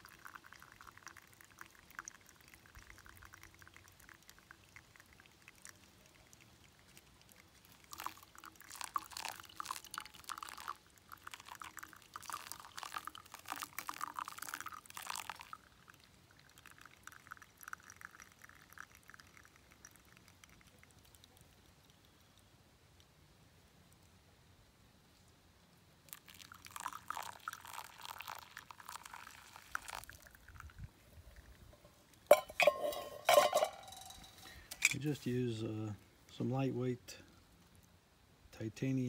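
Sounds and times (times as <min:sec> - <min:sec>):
coffee trickling and dripping: 0:00.0 - 0:39.0.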